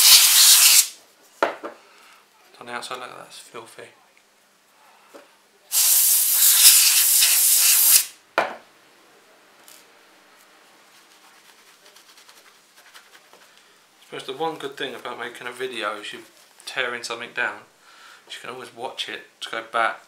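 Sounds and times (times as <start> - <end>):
compressed air hissing: 0.0 - 1.0, 5.7 - 8.2
short air puff: 0.0 - 1.0, 5.7 - 8.1.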